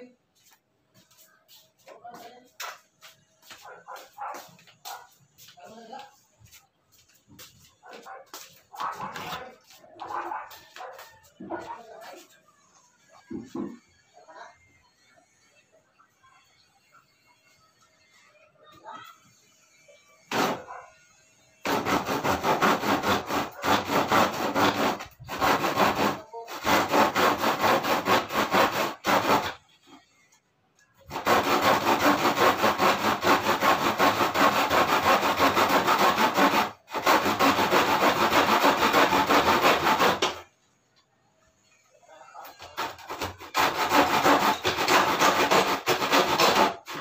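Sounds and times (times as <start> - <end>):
hand saw cutting wood: 20.3 - 20.8, 21.6 - 30.3, 31.0 - 40.5, 42.4 - 47.0.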